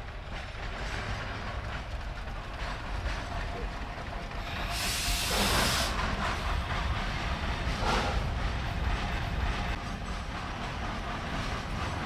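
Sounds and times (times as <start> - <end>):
steam locomotive rumble: 0.0 - 12.0
loud steam hissing: 4.4 - 6.5.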